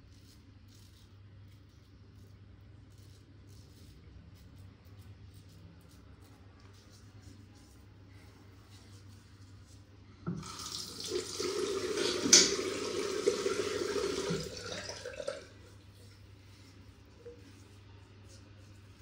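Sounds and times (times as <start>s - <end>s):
water running into sink: 10.3s - 15.6s.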